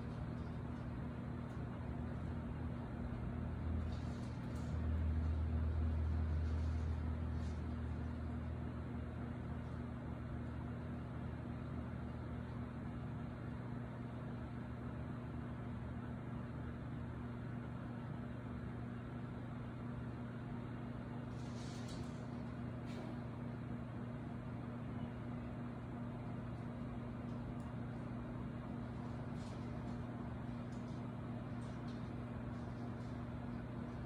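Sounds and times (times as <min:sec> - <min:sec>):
low mechanical hum: 0:00.0 - 0:34.0.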